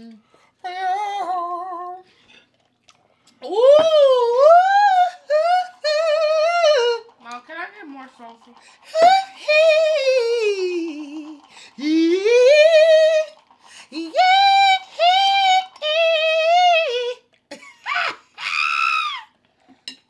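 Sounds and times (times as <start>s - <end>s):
woman singing wordless high notes: 0.0s - 2.0s, 3.4s - 7.1s, 8.9s - 17.2s.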